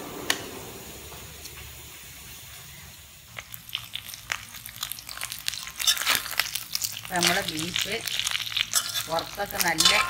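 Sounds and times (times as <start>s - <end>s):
steam hissing from a vent: 0.0s - 3.3s
meat frying in oil: 1.5s - 10.0s
metal spoon stirring: 5.1s - 10.0s.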